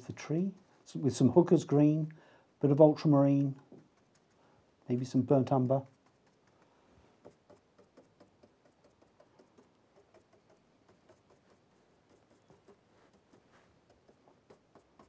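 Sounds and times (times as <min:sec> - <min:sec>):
paintbrush tapping on canvas: 0:05.6 - 0:15.0.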